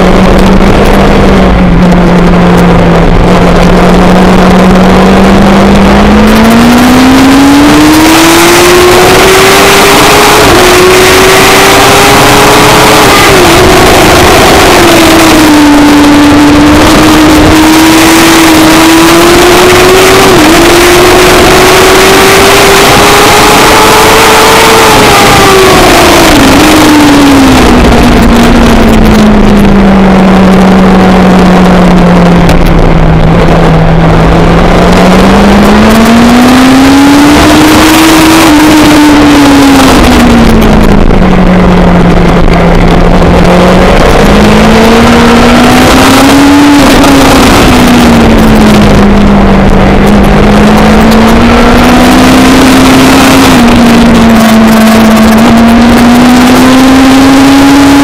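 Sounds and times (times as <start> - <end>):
race car engine revving: 0.0 - 58.0
steady rushing noise: 0.0 - 58.0.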